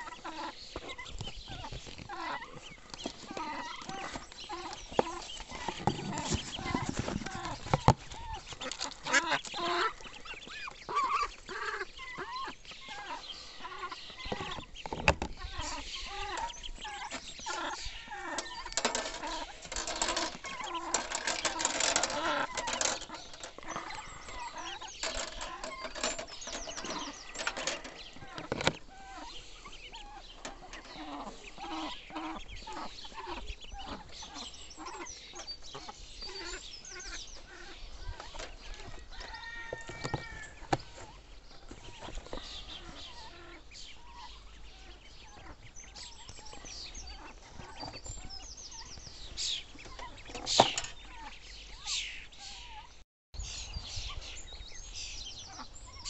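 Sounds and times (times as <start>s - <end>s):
ducklings peeping: 0.0s - 56.0s.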